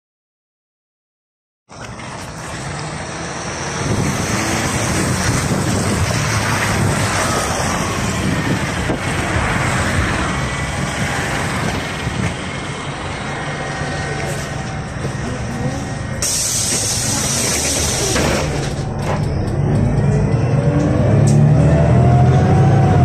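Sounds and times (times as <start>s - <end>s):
bus engine running: 1.7s - 23.0s
wind noise on microphone: 3.6s - 12.8s.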